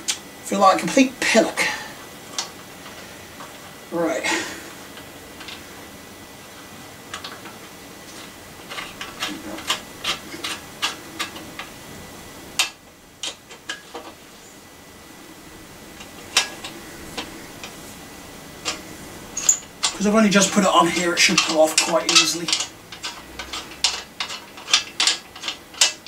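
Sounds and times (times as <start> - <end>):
hand tools clicking on metal: 7.1 - 11.7, 12.6 - 14.2, 16.0 - 17.8, 18.6 - 26.0.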